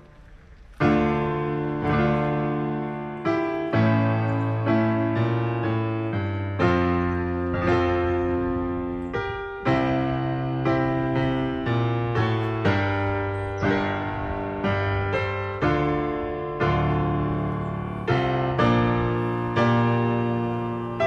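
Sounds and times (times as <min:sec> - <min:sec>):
slow soft piano music: 0:00.0 - 0:21.0.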